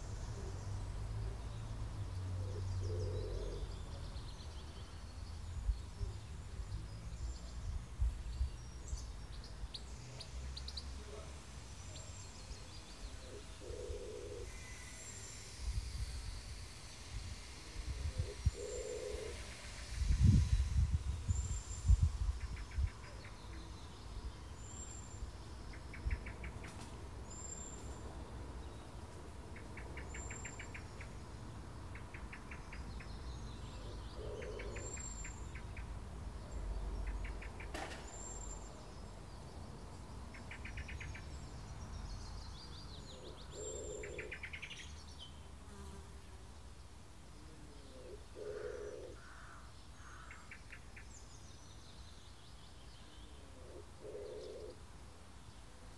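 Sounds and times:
insects: 0:00.0 - 0:55.9
lower bird calls: 0:02.3 - 0:06.2, 0:13.0 - 0:16.2, 0:17.8 - 0:28.0, 0:31.9 - 0:35.9, 0:42.3 - 0:45.0, 0:47.4 - 0:51.5.

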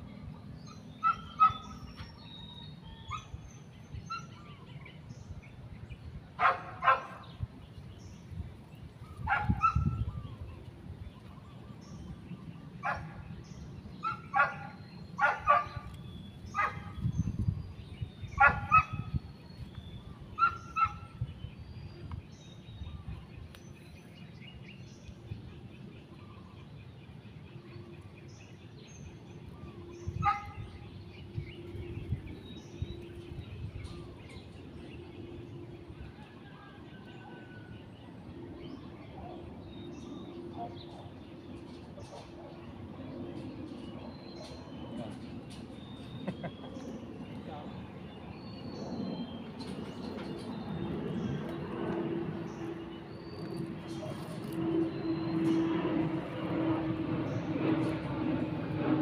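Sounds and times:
dog barking: 0:01.0 - 0:01.7, 0:06.4 - 0:07.2, 0:09.3 - 0:10.0, 0:12.8 - 0:13.1, 0:14.0 - 0:15.9, 0:16.6 - 0:16.9, 0:18.4 - 0:19.0, 0:20.4 - 0:21.0, 0:30.2 - 0:30.6.

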